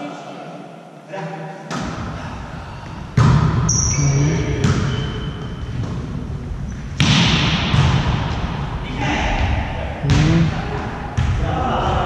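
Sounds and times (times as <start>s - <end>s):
volleyball smacks echoing: 3.2s - 3.7s, 7.0s - 8.6s, 10.0s - 11.5s.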